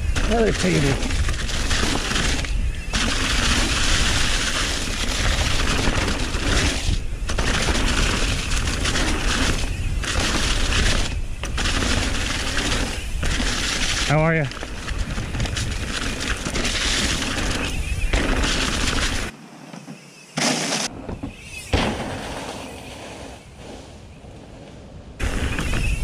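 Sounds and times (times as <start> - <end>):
wind rushing over microphone: 0.0 - 19.3
bike tyre and frame rattle: 0.0 - 24.4, 25.2 - 26.0.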